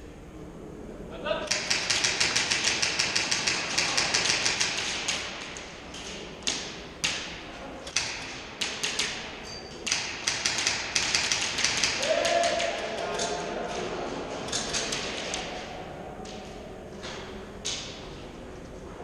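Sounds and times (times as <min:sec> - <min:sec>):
airsoft guns firing: 0:01.5 - 0:05.8, 0:06.4 - 0:13.9.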